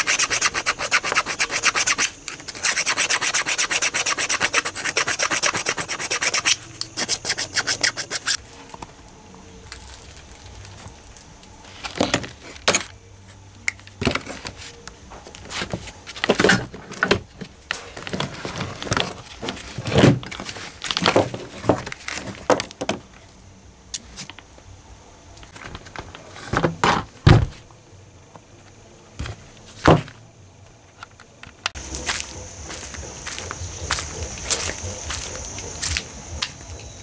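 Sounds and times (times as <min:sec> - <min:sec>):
cords rustling and dragging: 0:09.6 - 0:22.5
loud thump: 0:26.8 - 0:27.6.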